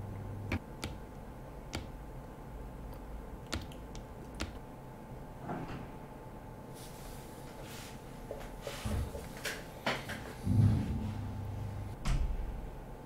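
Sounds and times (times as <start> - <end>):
faint room hum: 0.0 - 13.0
keyboard clicks: 0.5 - 1.1, 1.7 - 1.9, 3.4 - 4.6.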